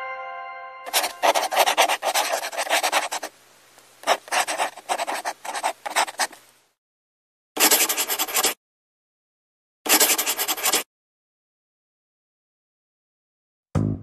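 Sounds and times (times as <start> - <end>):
chime ringing: 0.0 - 1.2
marker scratching on paper: 0.9 - 3.3, 4.0 - 6.4, 7.6 - 8.6, 9.9 - 10.9.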